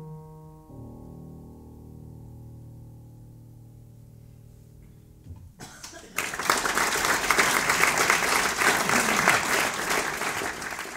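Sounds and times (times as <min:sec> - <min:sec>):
piano notes: 0:00.0 - 0:05.6
audience applauding: 0:05.6 - 0:10.9.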